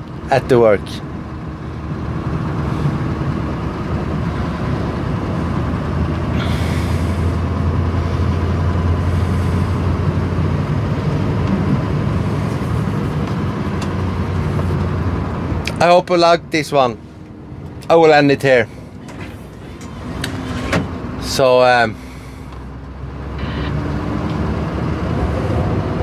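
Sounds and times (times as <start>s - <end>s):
diesel truck engine running: 0.0s - 26.0s.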